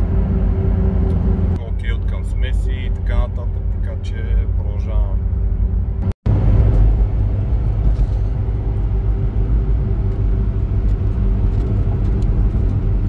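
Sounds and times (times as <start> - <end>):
car engine drone: 0.0 - 13.0
road noise: 0.0 - 13.0.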